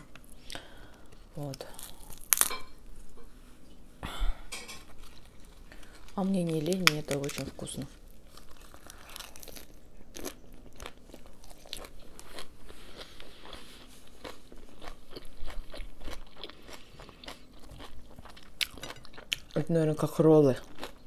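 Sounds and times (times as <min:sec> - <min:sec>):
crisp lettuce crunching: 0:01.4 - 0:02.6, 0:04.9 - 0:21.0.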